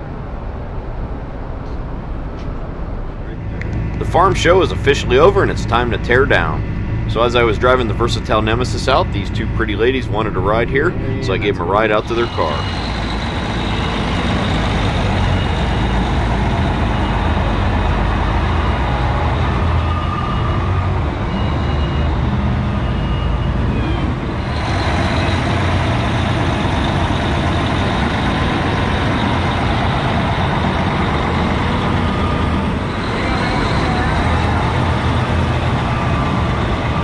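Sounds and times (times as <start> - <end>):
large diesel engine running: 1.0 - 37.0.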